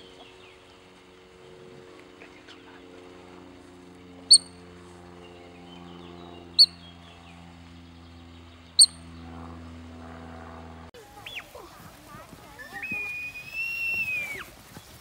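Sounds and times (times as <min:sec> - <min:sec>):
high-pitched bird-like chirps: 0:08.8 - 0:09.0.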